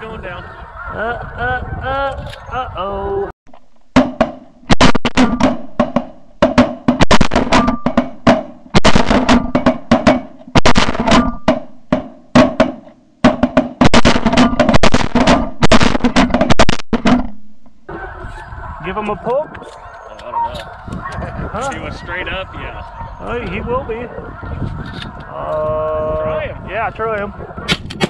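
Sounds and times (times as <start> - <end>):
music with fast heavy drums: 4.0 - 17.4.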